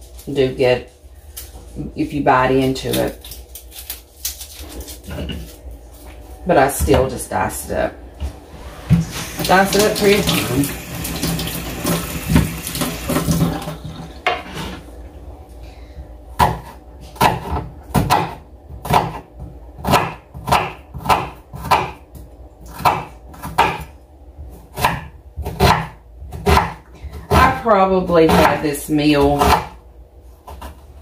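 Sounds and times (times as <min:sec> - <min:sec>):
kitchen tap running: 0:08.9 - 0:14.4
knife chopping on wooden board: 0:16.4 - 0:22.0, 0:22.7 - 0:23.9, 0:24.7 - 0:27.6, 0:28.3 - 0:28.6, 0:29.2 - 0:29.8.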